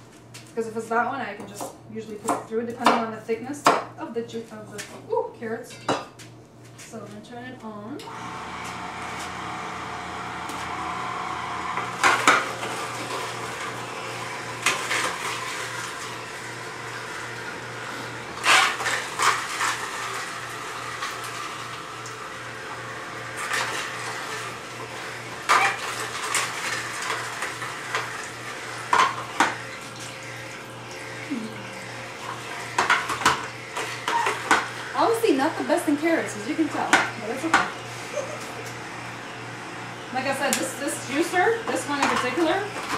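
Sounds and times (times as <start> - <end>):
juicer motor humming: 8.0 - 42.9.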